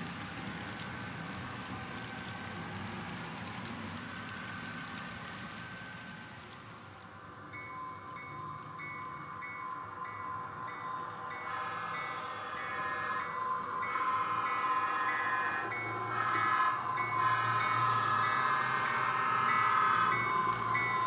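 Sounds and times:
model freight cars rolling: 0.0 - 21.0
model locomotive approaching: 0.0 - 21.0
crossing bell ringing: 7.5 - 21.0.

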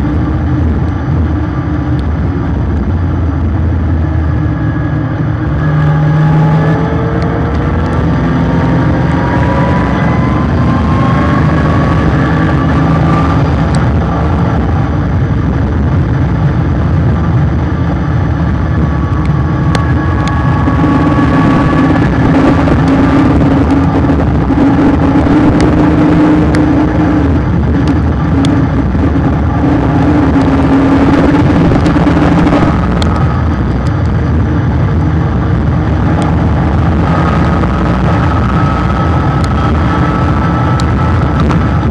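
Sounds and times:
car engine accelerating: 0.0 - 41.9
road noise: 0.0 - 41.9
wind noise: 0.0 - 41.9.

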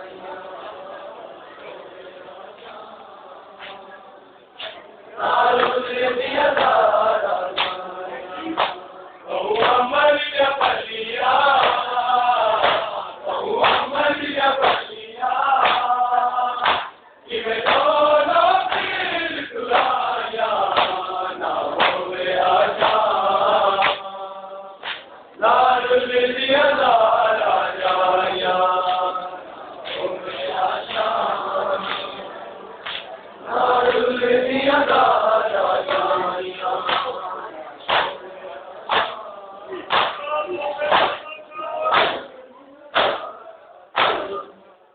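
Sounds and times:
men chanting in unison: 0.0 - 44.6
hands beating on chests: 11.6 - 11.9, 12.6 - 13.0, 13.6 - 13.9, 14.6 - 14.9, 15.6 - 15.9, 16.6 - 16.9, 17.6 - 17.9, 20.7 - 21.0, 38.9 - 39.2, 39.9 - 41.3, 41.9 - 42.3, 43.0 - 43.3, 44.0 - 44.4.

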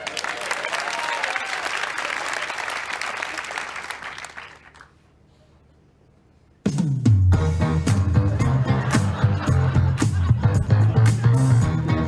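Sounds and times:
audience applause: 0.0 - 5.0
music: 6.6 - 12.0.

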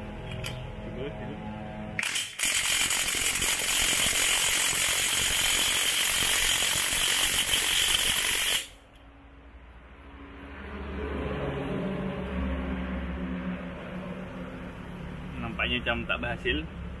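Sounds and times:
impact wrench hammering: 2.0 - 8.8.

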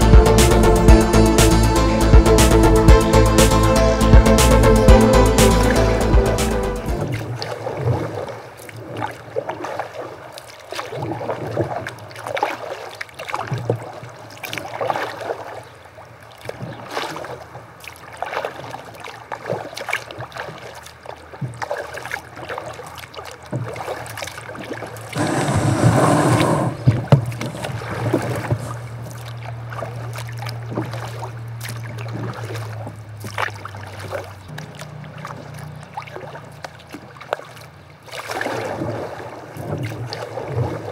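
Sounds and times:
paddle strokes splashing water: 6.8 - 40.9
loud rushing noise: 25.2 - 26.9.

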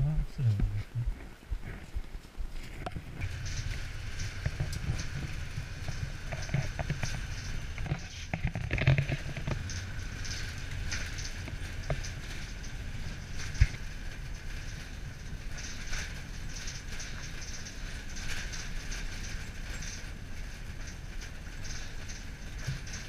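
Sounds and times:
bus engine and road rumble: 0.0 - 23.0
rattles and clicks of bus body: 1.2 - 23.0.

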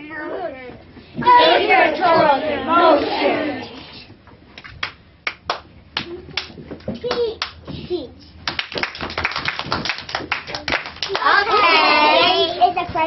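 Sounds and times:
children clapping hands: 4.8 - 7.6, 8.4 - 11.5.

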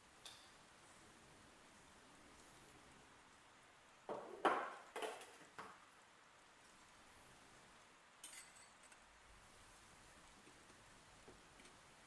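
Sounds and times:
steel kitchenware clattering: 8.2 - 9.0
light metallic clink: 8.2 - 9.1.

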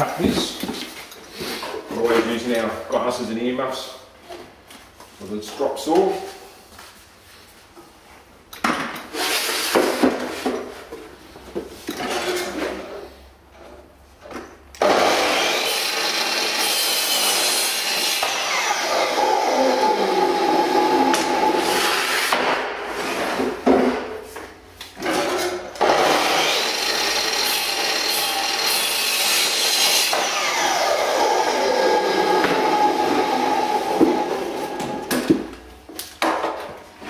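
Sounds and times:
mitre saw cutting wood: 14.8 - 22.5, 25.8 - 35.1.

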